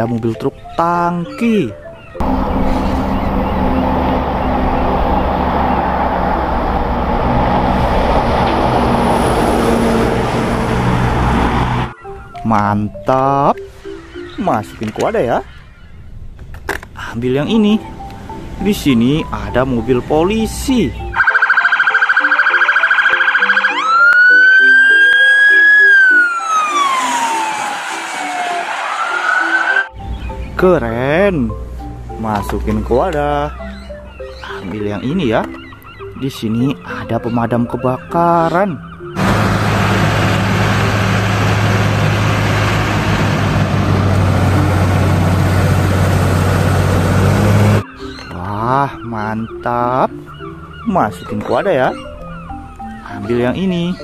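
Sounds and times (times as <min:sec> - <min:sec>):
diesel engine running: 0:02.2 - 0:11.9, 0:39.2 - 0:47.8
police car siren: 0:21.1 - 0:30.0.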